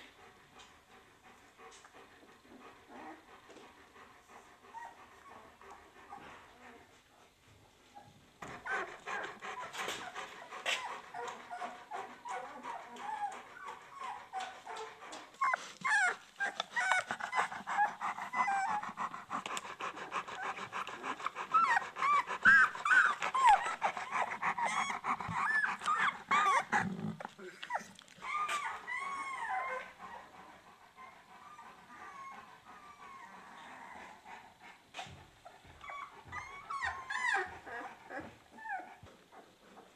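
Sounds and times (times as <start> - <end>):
puppies squealing and whimpering: 15.4 - 19.1, 20.3 - 30.2, 35.8 - 38.9.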